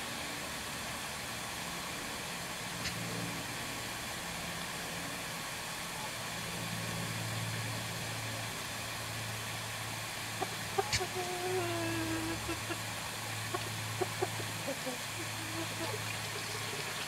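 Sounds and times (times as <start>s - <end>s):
hose water rushing into barrel: 12.0s - 17.0s.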